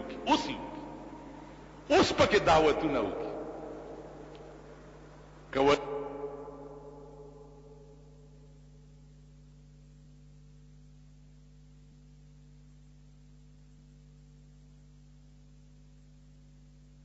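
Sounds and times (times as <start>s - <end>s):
faint hiss: 0.0s - 9.5s
low electrical hum: 0.0s - 17.0s.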